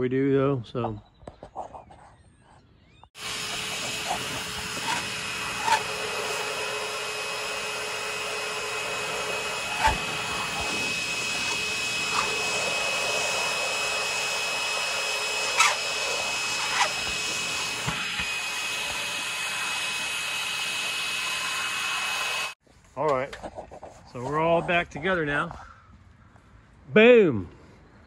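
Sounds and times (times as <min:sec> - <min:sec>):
shop vacuum motor whine: 0:02.8 - 0:22.6
scraper scraping paint from wood: 0:03.5 - 0:06.5, 0:08.8 - 0:13.9, 0:15.5 - 0:18.3.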